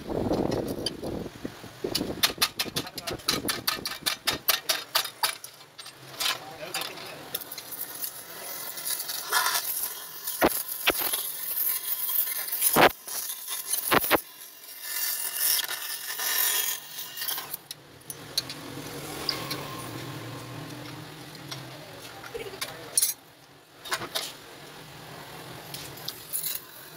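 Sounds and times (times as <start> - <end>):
welding torch hissing: 7.3 - 17.7.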